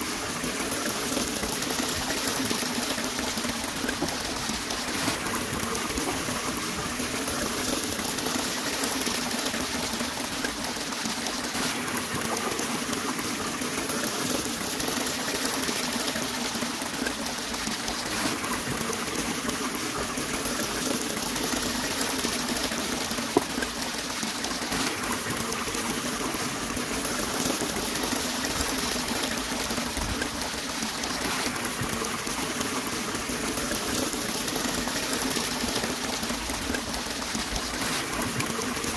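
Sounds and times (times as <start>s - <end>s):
hands digging in muddy water: 3.7s - 7.6s, 37.7s - 38.9s.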